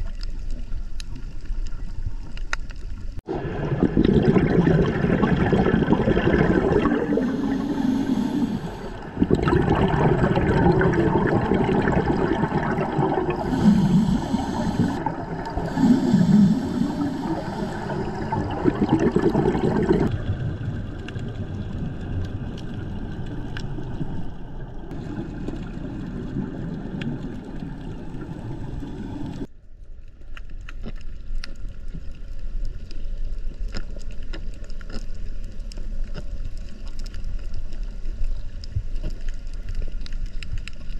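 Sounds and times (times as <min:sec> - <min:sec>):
faint underwater clicks and crackles: 0:00.0 - 0:40.9
underwater wash: 0:00.0 - 0:40.9
scuba exhalation bubbles: 0:03.2 - 0:23.3.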